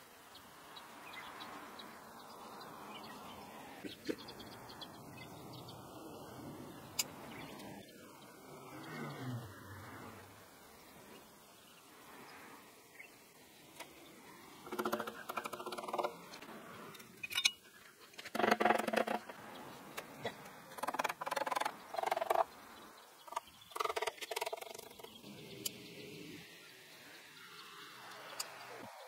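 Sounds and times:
wire mesh rattling and scraping: 14.6 - 19.4.

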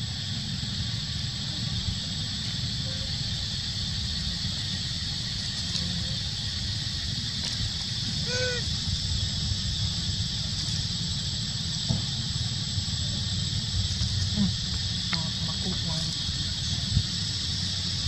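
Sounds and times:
high-pitched insect drone: 0.0 - 18.0
monkey squeak call: 8.3 - 8.6.

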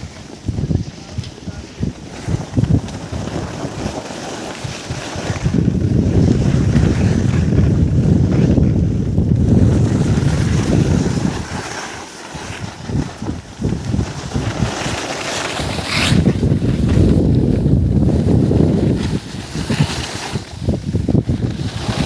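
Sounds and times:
wind rushing over microphone: 0.0 - 22.0.

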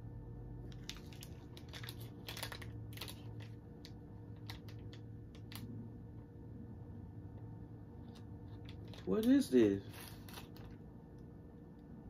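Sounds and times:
low steady hum: 0.0 - 12.0
plastic wrapper crackling: 0.6 - 5.7, 8.0 - 10.8.

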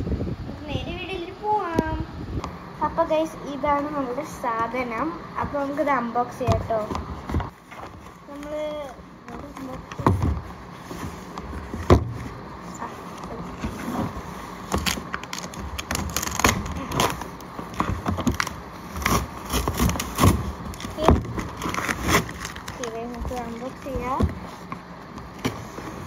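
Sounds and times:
cardboard scraping and rustling: 3.7 - 26.0
cardboard flap tearing: 13.6 - 24.2.

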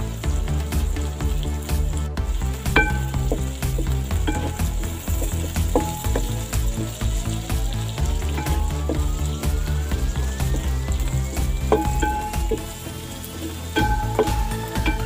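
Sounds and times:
onions sizzling in a pot: 0.0 - 15.0.

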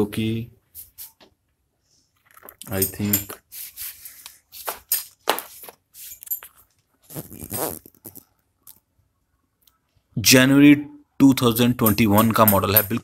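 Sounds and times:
rustling and scraping: 1.9 - 8.8.

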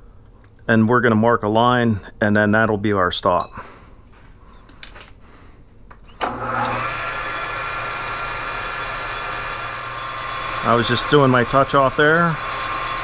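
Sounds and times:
lathe motor humming and whining: 6.2 - 13.0.

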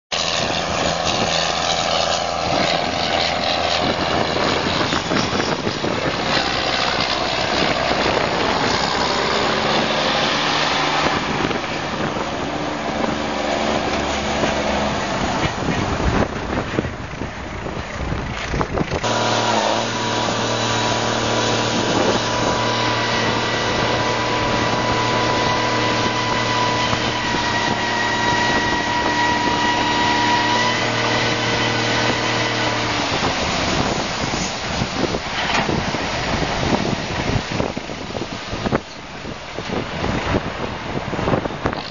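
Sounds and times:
tractor diesel engine running: 0.1 - 41.9
steady high whine: 19.0 - 34.9.

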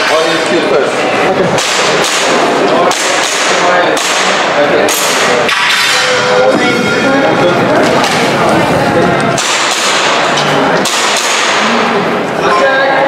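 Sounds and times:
airsoft pistol shots: 1.6 - 5.9, 9.4 - 11.8.

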